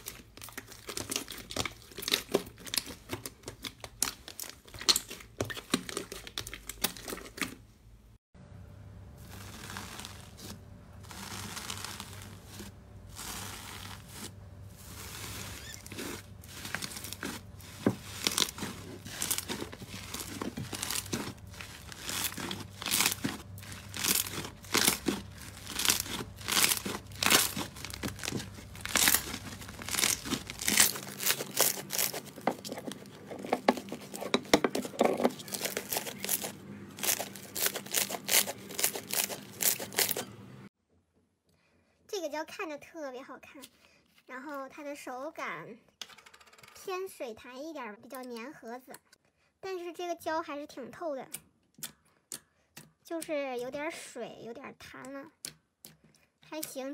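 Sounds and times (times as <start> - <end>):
slime squeezed by hand: 9.2 - 33.1.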